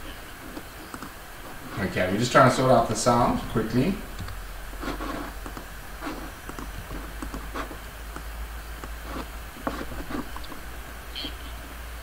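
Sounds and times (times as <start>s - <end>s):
low electrical hum: 0.0s - 12.0s
fingers scraping on microphone: 4.8s - 8.2s, 8.8s - 10.7s.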